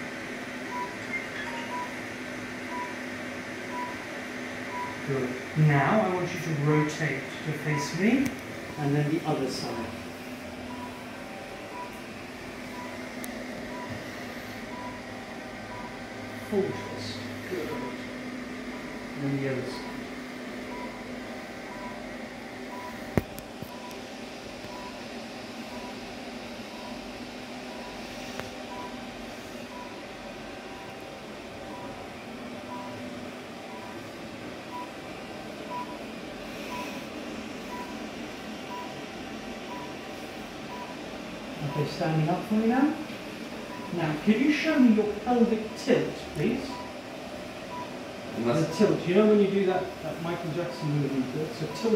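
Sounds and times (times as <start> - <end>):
machine hum: 0.0 - 51.9
short beeps: 0.7 - 2.0.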